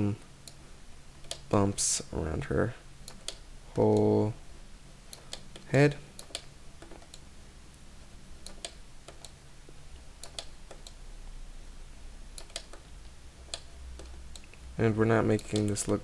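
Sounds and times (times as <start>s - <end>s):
low steady hum: 0.0s - 16.0s
mouse and keyboard clicks: 10.2s - 11.0s, 12.4s - 12.8s, 15.3s - 16.0s.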